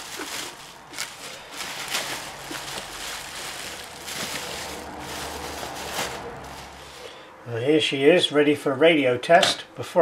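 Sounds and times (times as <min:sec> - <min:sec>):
bubble wrap crinkling: 0:00.0 - 0:07.1.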